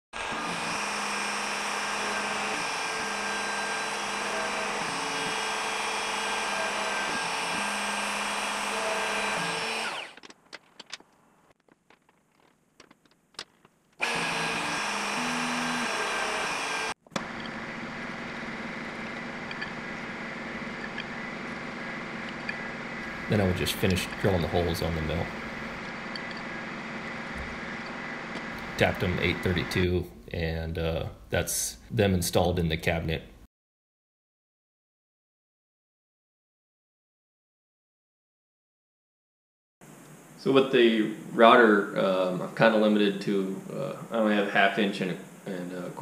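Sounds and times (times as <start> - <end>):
milling machine spindle running: 0.2 - 10.2, 14.0 - 29.8
router spindle whining: 0.2 - 10.4, 14.0 - 29.9.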